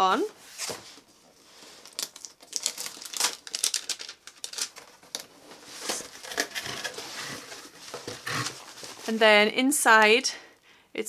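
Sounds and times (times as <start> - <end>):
cardboard box and paper being opened: 0.6 - 9.1.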